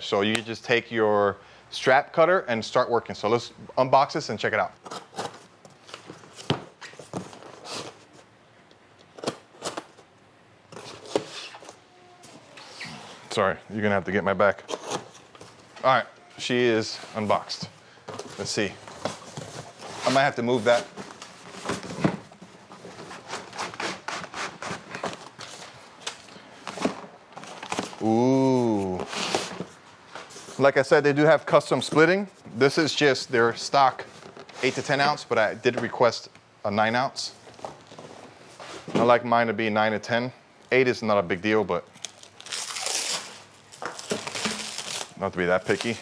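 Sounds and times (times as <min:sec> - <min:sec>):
cardboard and paper rustling: 0:17.0 - 0:30.6, 0:43.7 - 0:46.0.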